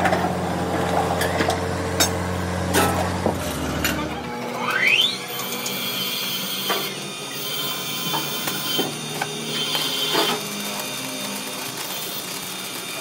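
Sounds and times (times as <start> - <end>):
machine hum: 0.0 - 13.0
welding arc crackling: 0.3 - 13.0.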